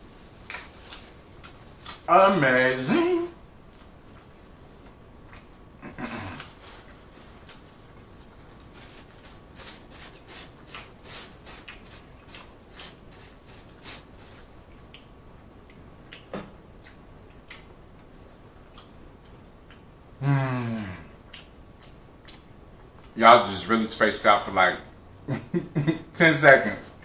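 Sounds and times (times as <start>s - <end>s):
chewing with wet smacks: 5.2s - 5.5s, 6.4s - 9.2s, 10.2s - 12.6s, 14.4s - 20.0s, 21.2s - 23.2s.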